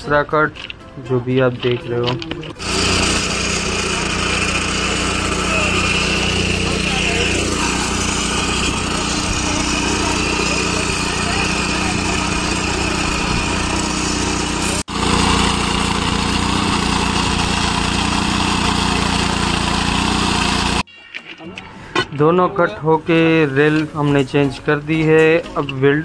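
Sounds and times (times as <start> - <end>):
abrasive disc cutter cutting steel: 2.5 - 20.9.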